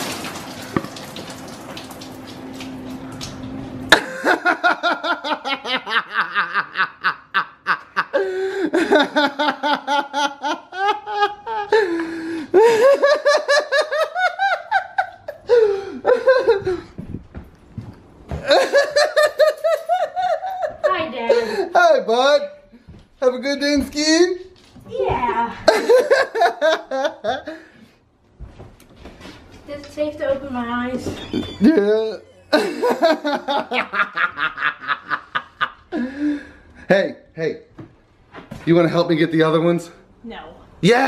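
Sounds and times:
person laughing hard: 3.9 - 17.0, 18.3 - 21.7, 25.6 - 27.6, 31.1 - 36.5.

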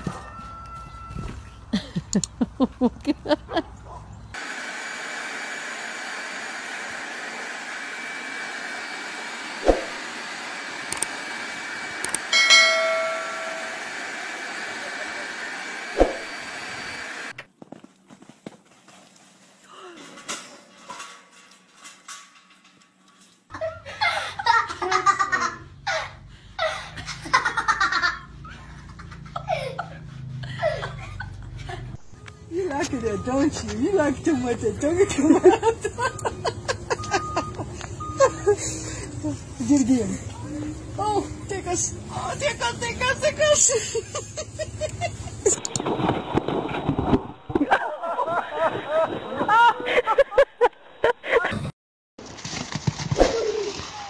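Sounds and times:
people laughing: 1.7 - 3.8, 14.6 - 15.5, 23.5 - 32.0, 34.8 - 39.4, 43.4 - 45.6, 47.6 - 51.6
electric blower rushing air: 4.4 - 17.4.

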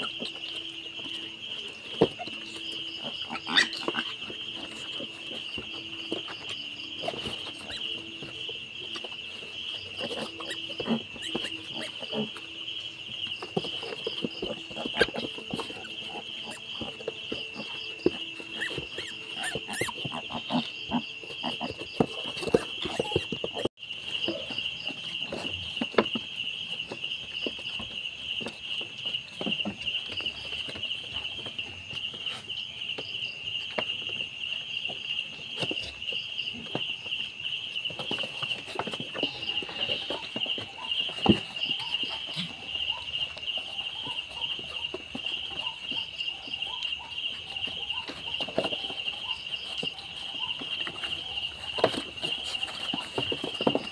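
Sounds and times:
insects chirping trill: 0.0 - 53.9.

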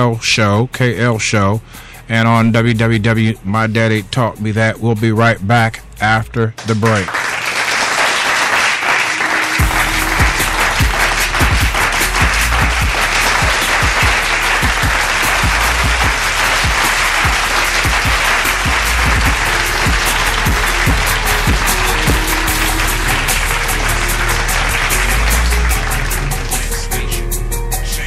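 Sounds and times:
loud music with bass and drum beat: 9.6 - 28.0.

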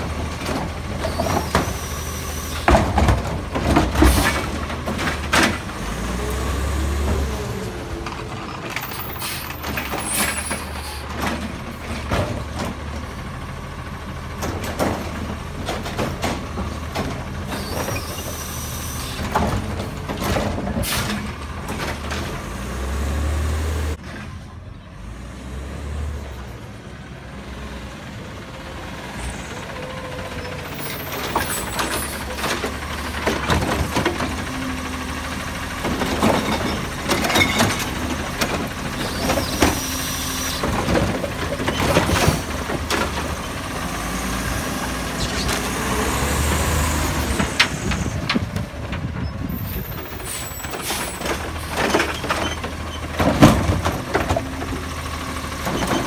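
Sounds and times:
garbage truck engine running: 0.0 - 25.2, 27.8 - 56.0.

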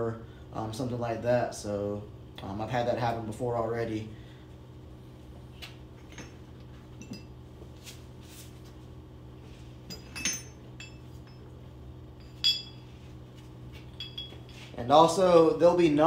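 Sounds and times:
steady low hum: 0.0 - 16.0
metal parts clinking: 9.9 - 11.5.

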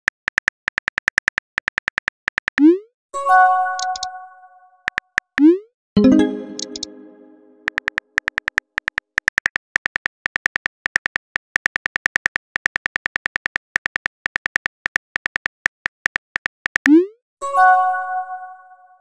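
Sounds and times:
phone keyboard typing clicks: 0.0 - 2.7, 3.8 - 4.1, 4.9 - 5.5, 6.1 - 7.0, 7.6 - 16.9.

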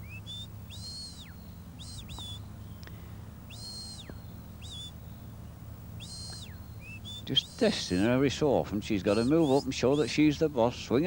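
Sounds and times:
high clear whistles: 0.0 - 2.9, 3.5 - 5.2, 6.0 - 8.1, 9.0 - 10.2
steady low hum: 0.0 - 11.0.

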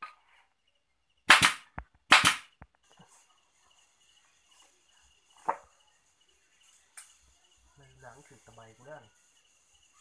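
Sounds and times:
air stapler shots: 1.3 - 2.5.

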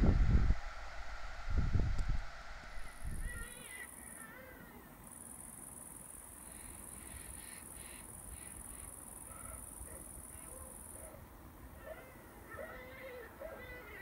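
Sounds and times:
insect trilling: 2.4 - 11.0.

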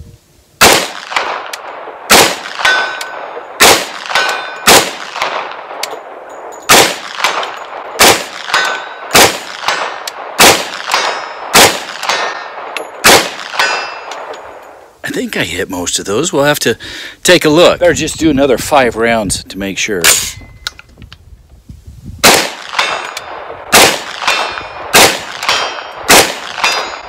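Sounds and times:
gunshots: 0.6 - 5.9, 6.7 - 14.3, 22.2 - 27.0
bullets pinging steel targets: 0.6 - 14.8, 22.2 - 27.0.

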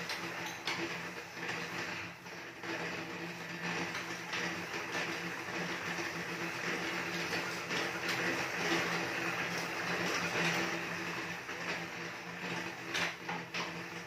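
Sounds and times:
flywheel whirring: 0.0 - 14.0.

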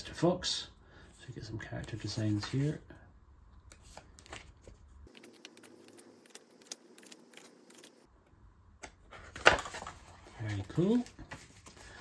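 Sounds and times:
paper pages turning: 3.7 - 8.1, 9.1 - 12.0.

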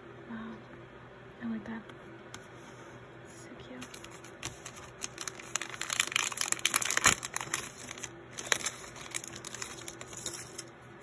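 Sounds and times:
foil pouch crinkling: 3.8 - 10.7.

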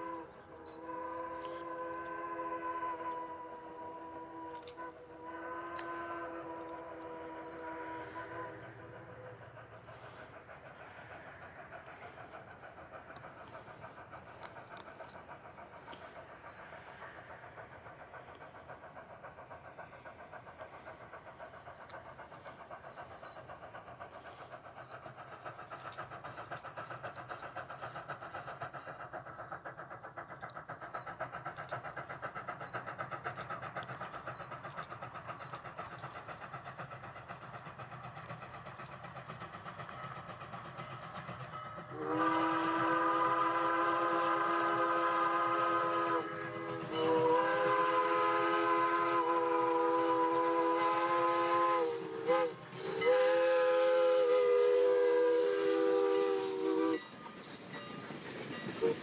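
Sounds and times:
steam locomotive exhaust chuffing: 0.0 - 59.0.

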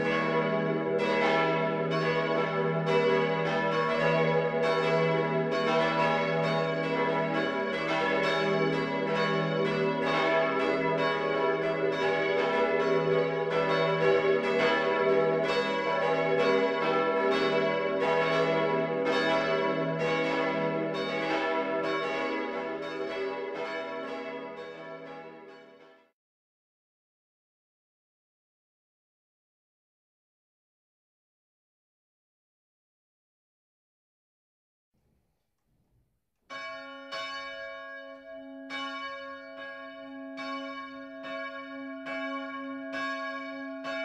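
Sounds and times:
church bells ringing: 0.0 - 26.1, 36.5 - 44.0.

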